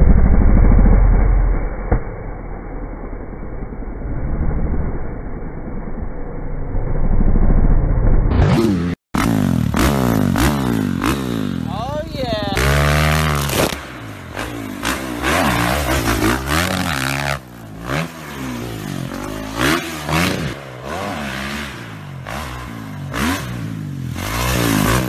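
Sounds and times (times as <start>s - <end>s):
dirt bike engine revving: 8.4s - 25.0s.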